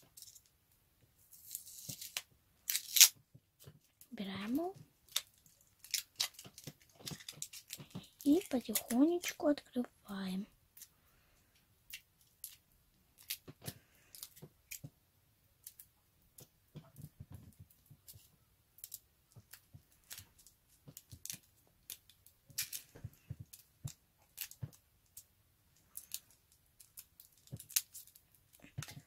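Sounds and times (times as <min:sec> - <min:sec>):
foil wrapper crinkling: 0:01.4 - 0:03.2, 0:05.0 - 0:09.4.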